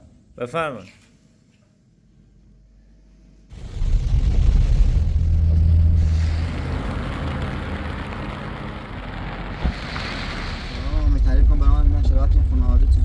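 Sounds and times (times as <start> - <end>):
car engine and road rumble: 3.5 - 13.0
rain and wet tyres hiss: 6.0 - 11.1.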